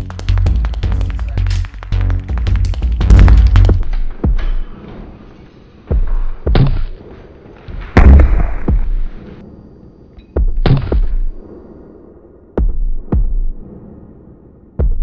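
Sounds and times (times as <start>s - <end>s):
punches landing with heavy thuds: 5.9s - 7.0s, 7.9s - 9.2s, 10.4s - 11.3s, 12.6s - 13.5s.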